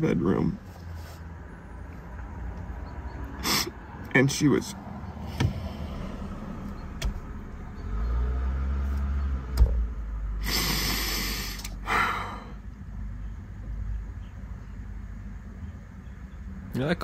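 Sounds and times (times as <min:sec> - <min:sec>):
low rumble: 0:04.8 - 0:10.5
man breathing out heavily: 0:10.4 - 0:12.6.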